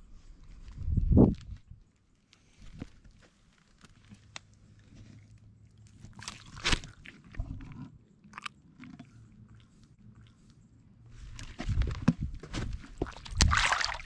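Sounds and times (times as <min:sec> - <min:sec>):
wet handling clicks and scrapes: 0:02.6 - 0:10.6, 0:11.2 - 0:14.0.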